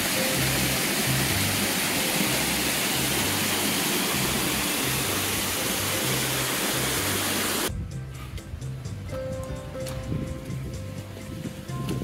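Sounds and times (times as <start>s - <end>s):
creek rushing over stones: 0.0s - 7.7s
background music with bass: 0.0s - 12.0s.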